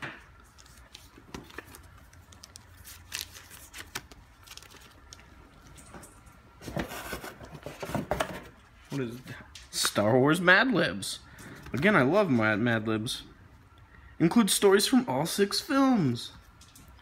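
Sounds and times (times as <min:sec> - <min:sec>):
plastic sleeve rustling: 0:00.3 - 0:08.0
items being set down: 0:05.9 - 0:08.6.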